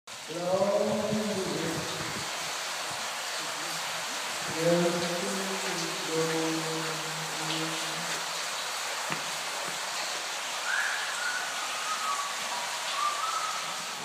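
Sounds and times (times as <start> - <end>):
water splashing onto floor: 0.2 - 14.0.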